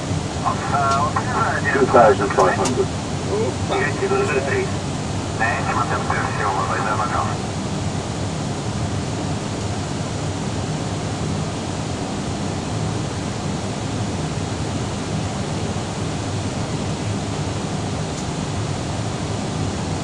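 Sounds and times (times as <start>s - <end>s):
airliner cabin noise: 0.0s - 8.4s.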